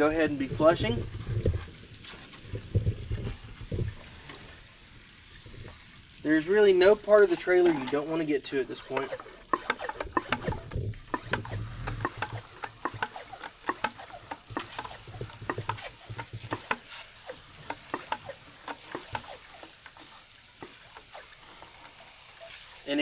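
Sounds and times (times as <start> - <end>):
sprayer spattering hiss: 6.2 - 23.0.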